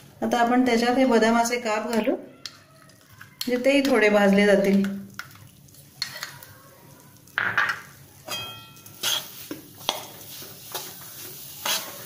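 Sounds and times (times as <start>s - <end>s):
metal spatula scraping a pan: 8.3s - 12.0s.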